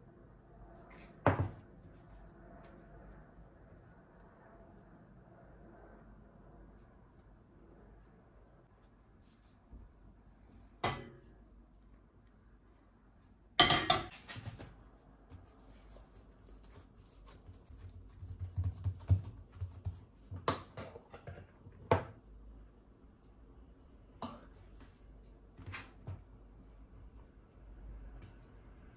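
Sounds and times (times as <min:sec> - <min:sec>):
kitchenware knocking and clinking: 0:10.8 - 0:11.2, 0:13.6 - 0:14.2.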